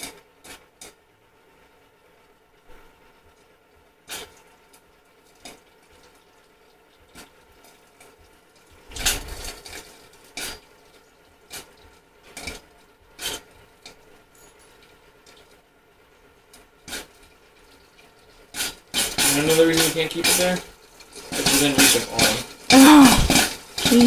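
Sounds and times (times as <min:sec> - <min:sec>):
metallic clinks and knocks: 0:14.2 - 0:15.0.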